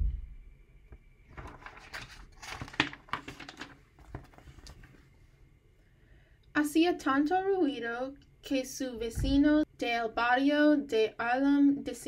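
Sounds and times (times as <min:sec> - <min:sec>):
book pages rustling: 0:01.3 - 0:05.1.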